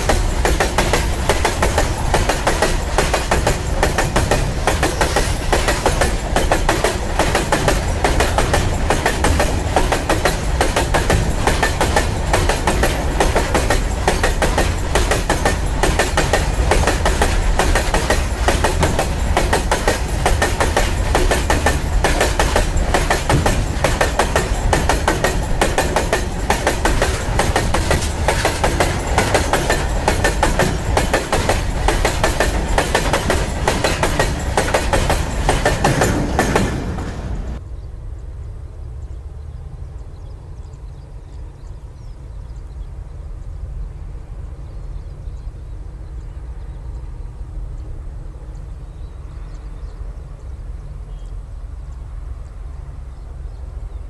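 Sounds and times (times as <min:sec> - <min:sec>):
train wheels clickety-clack: 0:00.0 - 0:37.6.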